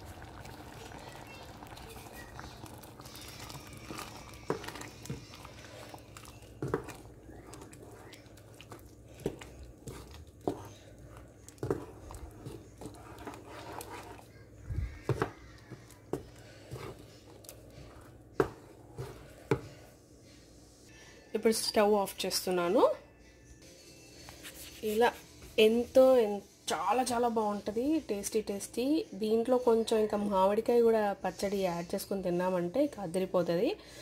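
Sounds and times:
wooden spoon stirring thick food: 0:00.0 - 0:20.1.

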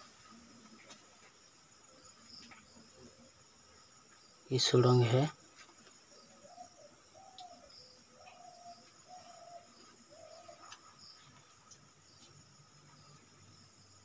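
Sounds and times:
faint bird hooting: 0:06.1 - 0:10.8.

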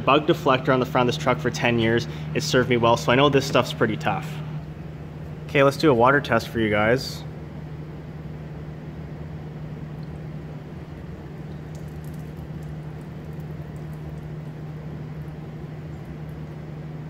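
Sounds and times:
low steady hum: 0:00.0 - 0:17.0
water running over glass: 0:10.9 - 0:17.0.

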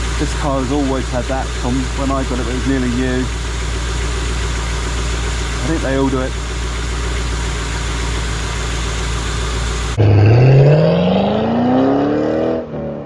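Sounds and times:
car engine idling: 0:00.0 - 0:12.2
rising pitch sound effect: 0:10.0 - 0:13.0.

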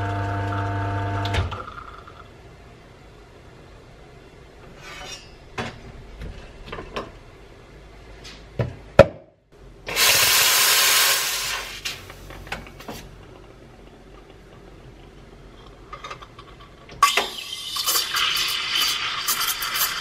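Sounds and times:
steam wand hissing: 0:09.9 - 0:11.9.

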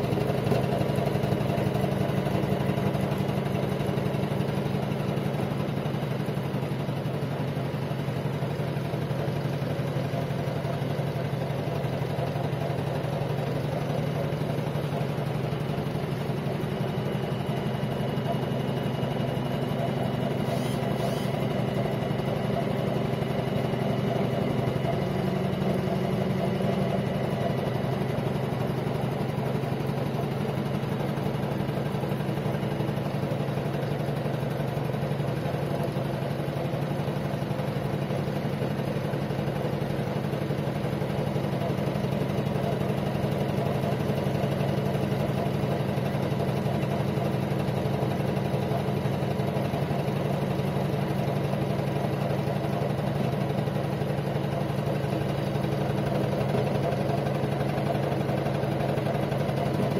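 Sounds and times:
embroidery machine stitching: 0:20.4 - 0:21.7.

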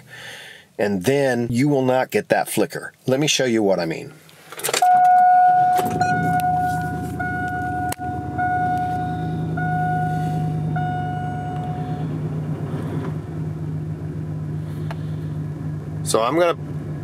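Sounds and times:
dashboard warning chime: 0:04.8 - 0:12.2
truck engine starting and idling: 0:04.8 - 0:17.0.

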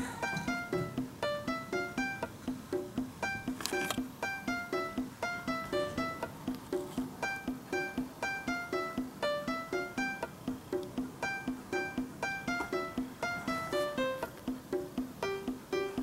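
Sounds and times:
bouncy low beat: 0:00.0 - 0:16.0
plucked-string tune: 0:00.0 - 0:16.0.

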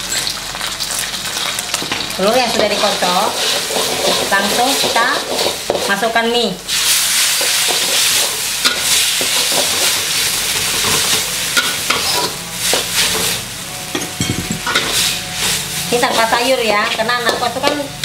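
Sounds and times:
food sizzling in a wok: 0:00.0 - 0:18.0
metal spatula scraping a pan: 0:02.5 - 0:06.0.

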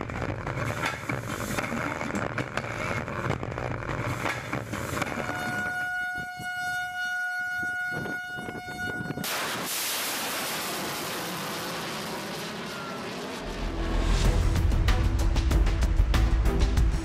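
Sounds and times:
horn-like warning tone: 0:05.0 - 0:09.3
rocket motor roaring: 0:09.2 - 0:14.8.

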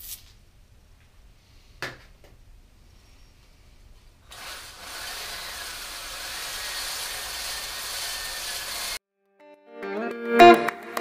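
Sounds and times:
drill grinding whir: 0:04.3 - 0:09.0.

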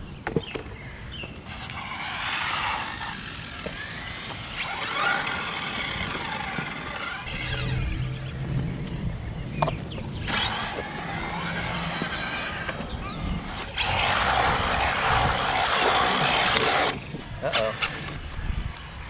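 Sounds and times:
rc car motor whining: 0:01.4 - 0:08.4, 0:10.2 - 0:18.2.

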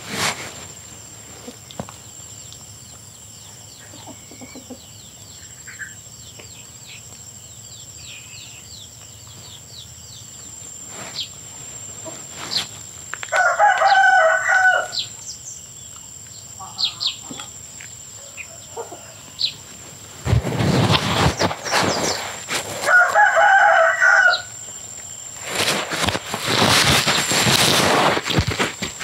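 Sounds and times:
rooster crowing: 0:13.2 - 0:15.2, 0:18.2 - 0:19.5, 0:22.8 - 0:24.7.

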